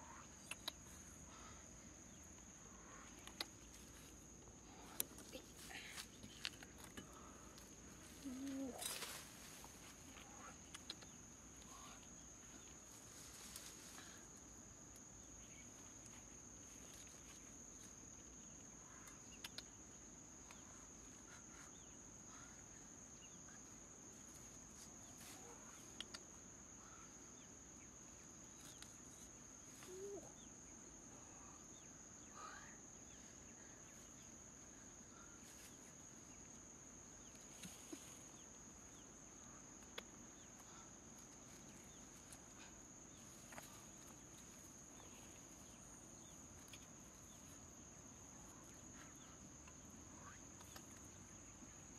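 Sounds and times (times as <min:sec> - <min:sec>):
faint bird calls: 0:29.6 - 0:34.3.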